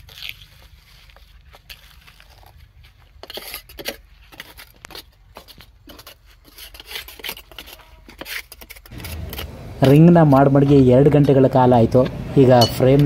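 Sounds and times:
trowel smoothing wet concrete: 0.0 - 12.0.

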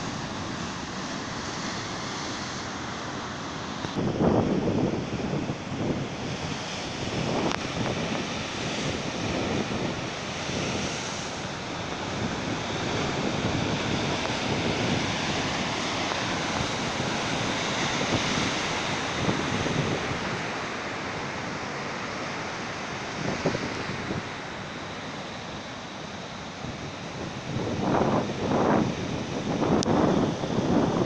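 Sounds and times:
wind buffeting microphone: 3.9 - 21.7, 22.4 - 24.8, 26.6 - 31.0.

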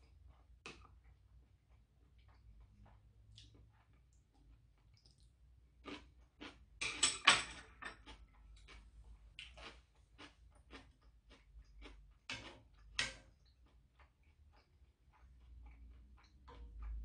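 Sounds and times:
chewing and wet mouth clicks: 0.0 - 6.6, 8.0 - 17.0
chopsticks clattering on table: 6.8 - 8.1.

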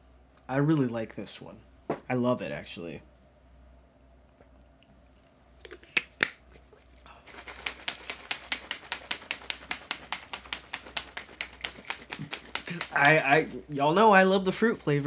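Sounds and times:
plastic shaker cup shaken: 5.6 - 13.6.

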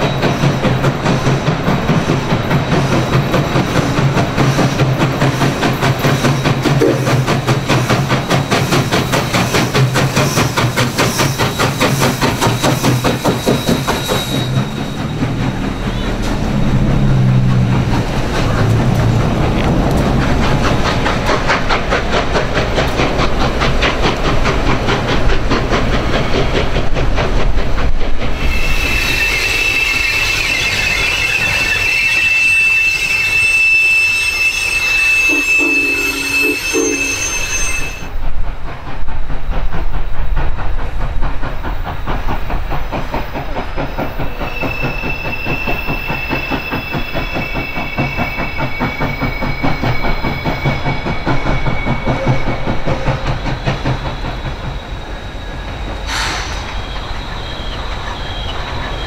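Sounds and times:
steam locomotive exhaust beat: 0.0 - 59.0
high wheel flange squeal: 2.2 - 17.4, 28.4 - 38.2, 44.2 - 59.0.

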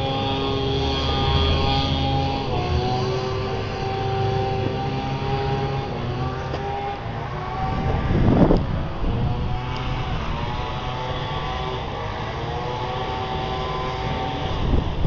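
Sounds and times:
low rumble on microphone: 0.0 - 11.4
engine drone: 0.0 - 15.0.

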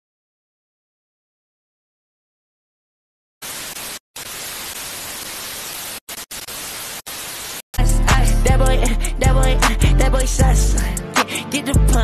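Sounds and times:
white-noise static hiss: 3.4 - 7.6.

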